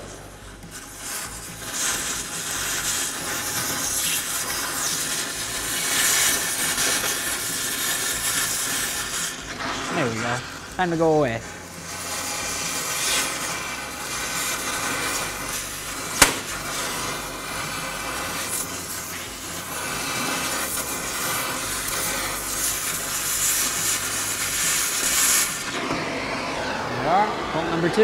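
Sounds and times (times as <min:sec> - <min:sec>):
cutting torch hissing: 0:00.0 - 0:28.0
sharp pop of torch cutting metal: 0:16.0 - 0:26.2.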